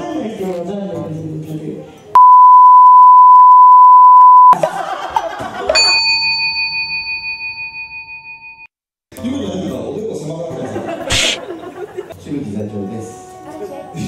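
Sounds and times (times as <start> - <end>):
high censor beep: 2.2 - 4.6
bell-like chime: 5.8 - 8.7.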